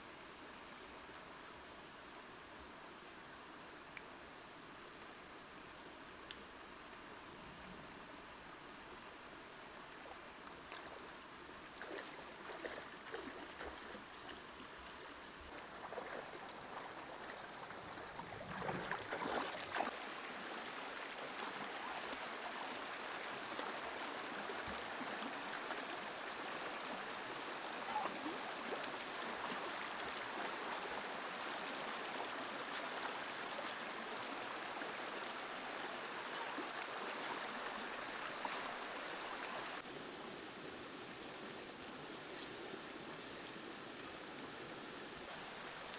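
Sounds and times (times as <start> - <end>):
stream running over rocks: 0.0 - 45.9
splashes of wading: 10.0 - 20.2.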